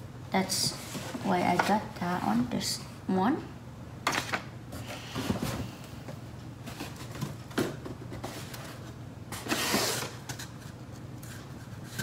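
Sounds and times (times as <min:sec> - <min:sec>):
cardboard box rustling scrape: 0:08.2 - 0:10.2.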